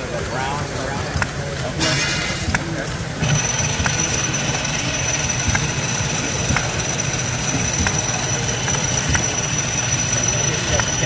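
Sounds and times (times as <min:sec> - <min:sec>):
model engine chugging: 0:00.0 - 0:11.0
sharp clicks: 0:01.0 - 0:11.0.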